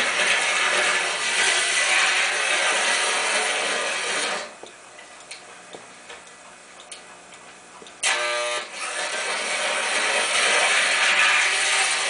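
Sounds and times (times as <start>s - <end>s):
model train running: 0.0s - 4.4s, 8.8s - 12.0s
light irregular clicks: 4.6s - 8.0s
loud buzzing hum: 8.0s - 12.0s.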